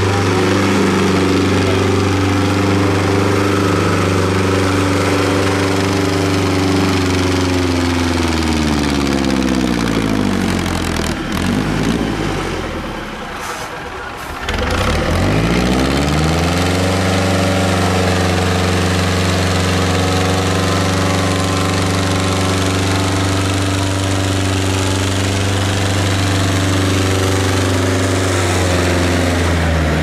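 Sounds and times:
tractor engine revving: 0.0s - 30.0s.

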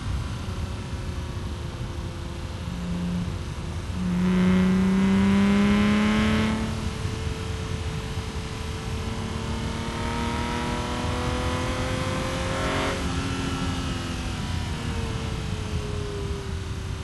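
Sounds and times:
car engine revving: 2.4s - 14.5s.

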